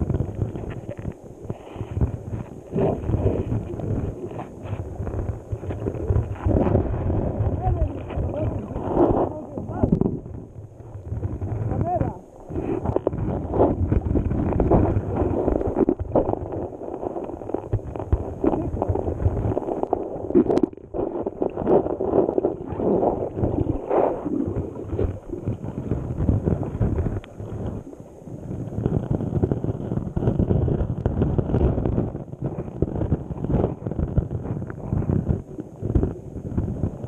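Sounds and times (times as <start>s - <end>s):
muffled river current underwater: 0.0s - 37.0s.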